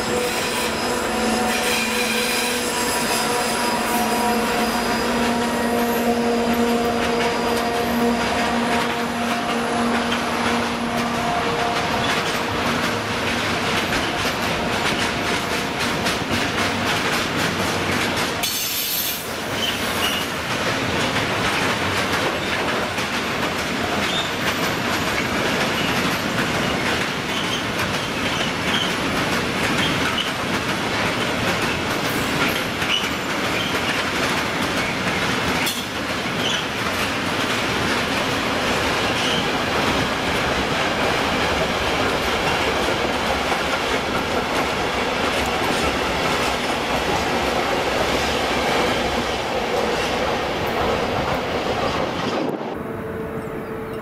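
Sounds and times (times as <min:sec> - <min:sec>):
high wheel squeaks: 0:00.0 - 0:09.0, 0:17.8 - 0:20.4, 0:24.0 - 0:29.0, 0:35.6 - 0:36.8, 0:39.0 - 0:39.6
train wheels clattering over rail joints: 0:01.5 - 0:52.6.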